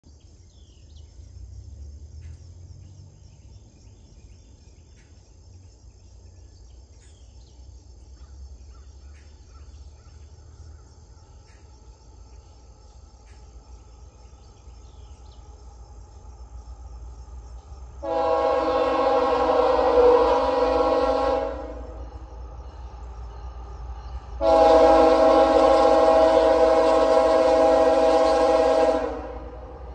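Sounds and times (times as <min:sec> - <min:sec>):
low rumble of freight train: 0:00.0 - 0:29.9
high insect drone: 0:00.1 - 0:29.9
locomotive air horn: 0:18.0 - 0:22.0, 0:24.4 - 0:29.8.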